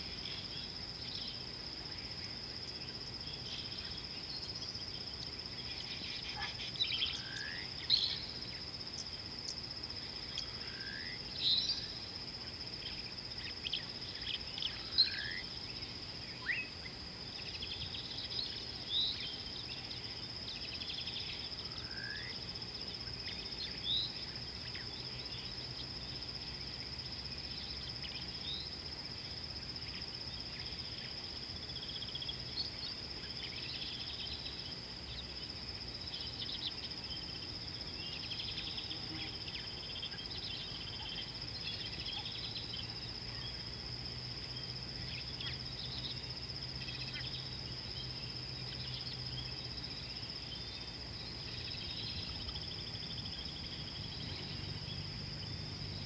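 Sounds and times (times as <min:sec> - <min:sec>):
high-pitched insect drone: 0:00.0 - 0:56.0.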